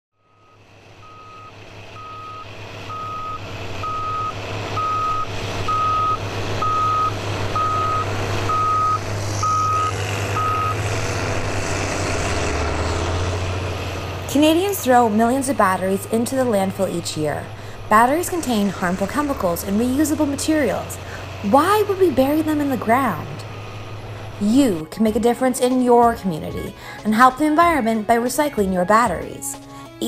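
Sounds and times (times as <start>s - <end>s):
reversing alarm beeping: 0.2s - 10.8s
heavy machine engine running: 0.2s - 29.9s.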